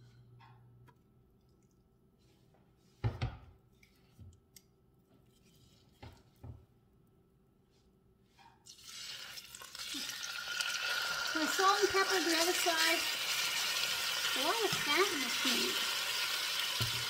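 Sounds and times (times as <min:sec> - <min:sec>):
meat sizzling in hot oil: 0:08.7 - 0:17.0.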